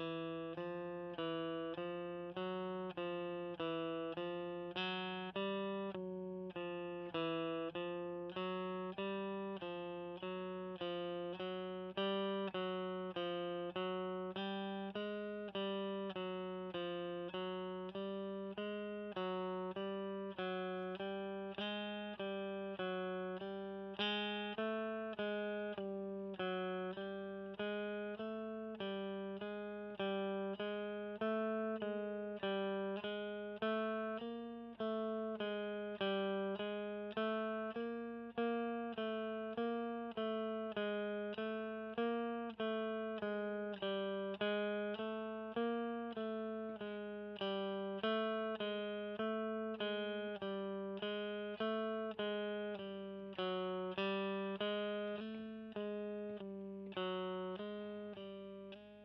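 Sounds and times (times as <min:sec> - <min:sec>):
electric guitar picked notes: 0:00.0 - 0:59.0.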